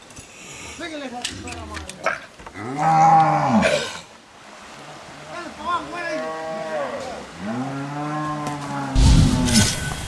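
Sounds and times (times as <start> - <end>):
cattle mooing: 2.6 - 3.9, 6.1 - 9.0.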